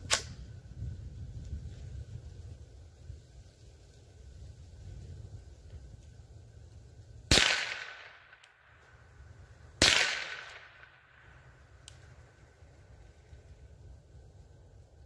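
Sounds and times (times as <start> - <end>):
rifle shots: 7.3 - 8.5, 9.8 - 11.2.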